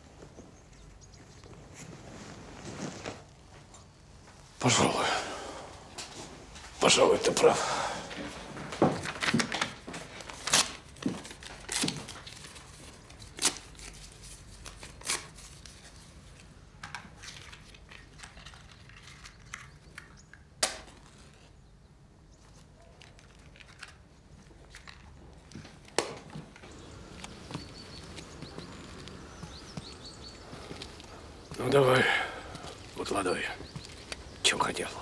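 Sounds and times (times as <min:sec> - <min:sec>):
cloth and paper rustling: 0:01.4 - 0:03.7, 0:06.0 - 0:19.7, 0:22.4 - 0:31.8.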